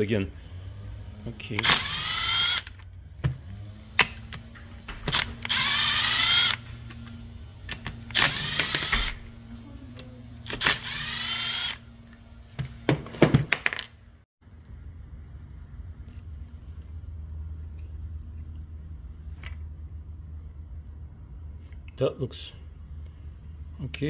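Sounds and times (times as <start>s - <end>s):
cordless drill motor whine: 0.5s - 9.5s, 10.4s - 12.2s.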